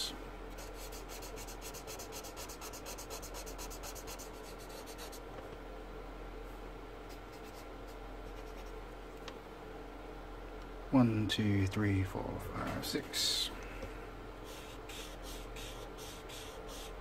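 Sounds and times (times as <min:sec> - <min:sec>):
marker scrubbing on paper: 0:00.6 - 0:05.2, 0:07.1 - 0:08.8, 0:14.4 - 0:17.0.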